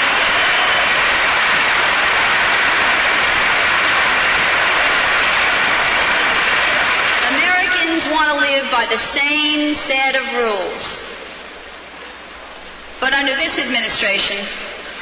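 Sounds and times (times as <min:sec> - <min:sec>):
crowd applauding and cheering: 0:00.0 - 0:08.7.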